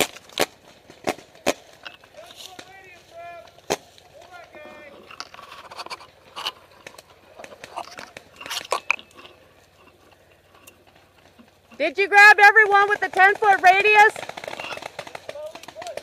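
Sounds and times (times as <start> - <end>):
twigs rustling and snapping: 0.0 - 11.8.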